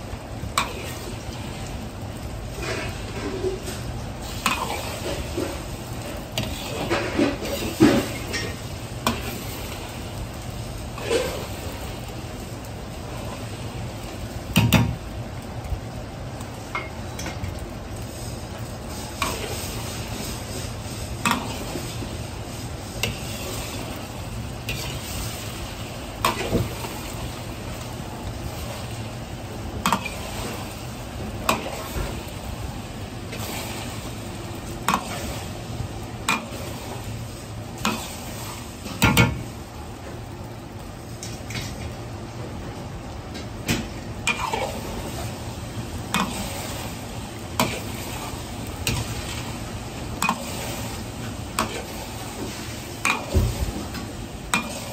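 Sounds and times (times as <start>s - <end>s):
egg sizzling in oil: 0.0s - 54.9s
gas burner rumble: 0.0s - 54.9s
metal ladle scraping a wok: 44.2s - 44.9s.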